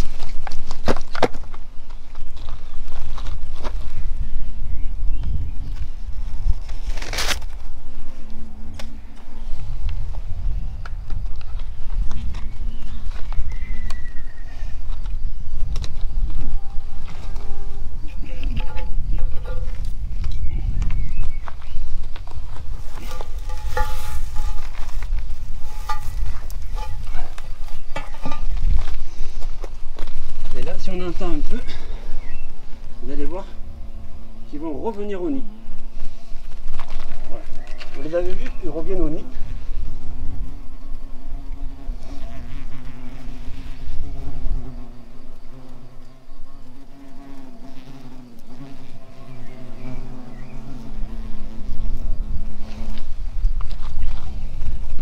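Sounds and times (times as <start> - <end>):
footsteps on grass and gravel: 0.0 - 4.3, 9.0 - 13.9, 14.7 - 33.0, 35.0 - 40.2, 52.6 - 55.0
wind on microphone: 2.6 - 34.5, 35.5 - 45.0, 48.6 - 55.0
crackling handling noise: 6.5 - 7.7, 22.0 - 30.7
hornets buzzing: 15.6 - 20.8, 22.5 - 36.0, 38.0 - 53.6.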